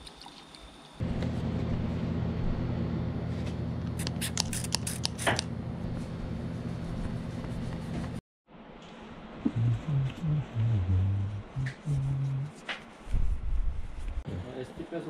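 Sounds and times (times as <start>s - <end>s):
steady low hum: 1.0s - 14.9s.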